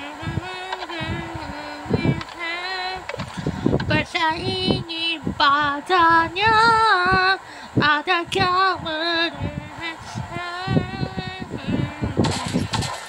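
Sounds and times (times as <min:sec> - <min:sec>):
high-pitched voice singing: 0:00.0 - 0:03.1, 0:03.9 - 0:12.8.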